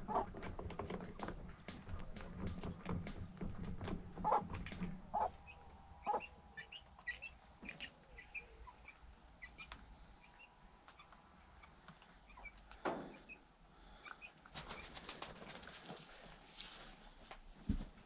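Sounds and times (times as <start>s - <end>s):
small birds chirping: 5.1s - 14.9s.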